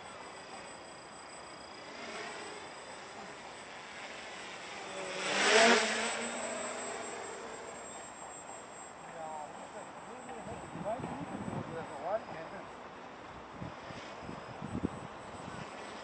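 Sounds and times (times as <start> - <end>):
quadcopter rotors buzzing: 0.0 - 16.0.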